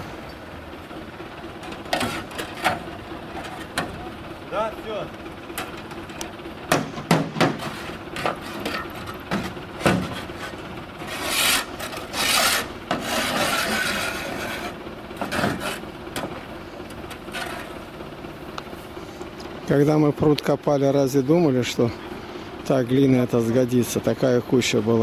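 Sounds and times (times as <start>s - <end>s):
shovel scraping trailer: 1.6s - 6.1s, 6.9s - 18.0s.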